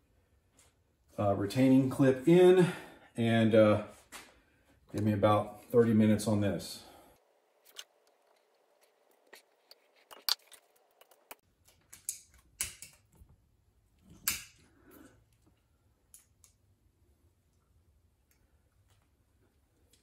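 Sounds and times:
small metal clicks and scrapes: 7.6s - 13.1s.

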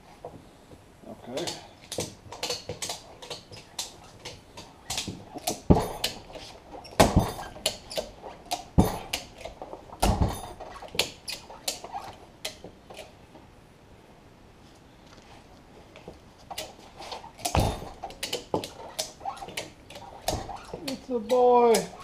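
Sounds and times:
heavy metal clunks: 7.0s - 7.8s, 8.6s - 9.3s, 17.4s - 18.6s.

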